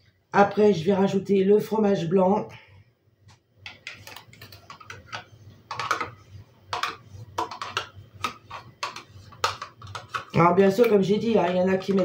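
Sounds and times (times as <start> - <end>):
spatula scraping plastic pot: 3.8 - 12.0.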